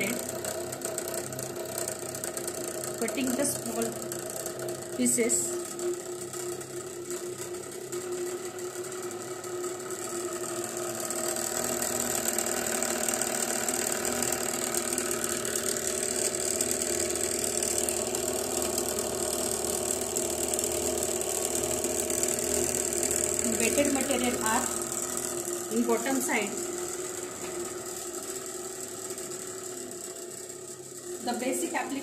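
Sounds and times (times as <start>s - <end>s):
homogenizer motor humming: 0.0s - 32.0s.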